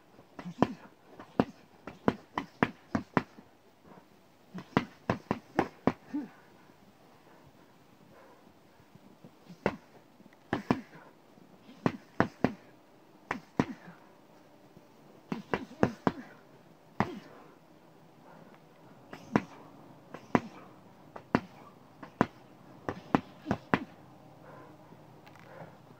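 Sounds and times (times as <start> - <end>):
boxing gloves punching tree trunk: 0.4 - 3.4, 4.6 - 6.3, 9.5 - 9.9, 10.5 - 11.0, 11.7 - 12.7, 13.3 - 14.0, 15.3 - 16.4, 17.0 - 17.4, 19.1 - 24.0.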